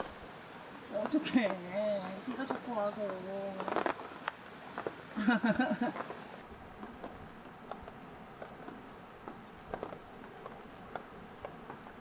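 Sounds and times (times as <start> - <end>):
low steady background hiss: 0.0 - 12.0
dogs eating with small clicks: 6.8 - 11.8.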